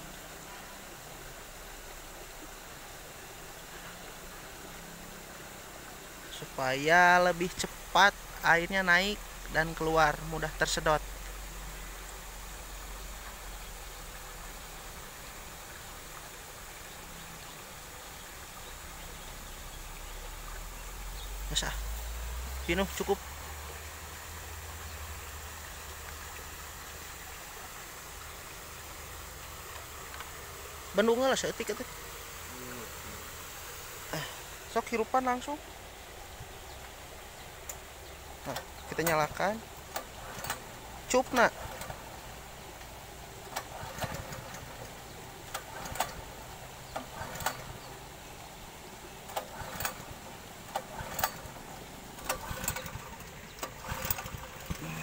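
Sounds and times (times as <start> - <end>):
outdoor background hiss: 0.0 - 55.0
small petrol engine idling: 0.1 - 55.0
sharp clicks and knocks: 37.6 - 47.8, 49.2 - 54.9.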